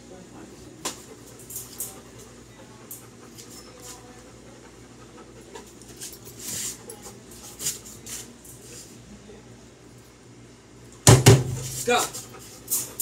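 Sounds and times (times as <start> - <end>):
dog panting and sniffing: 0.9 - 8.8, 11.5 - 13.0.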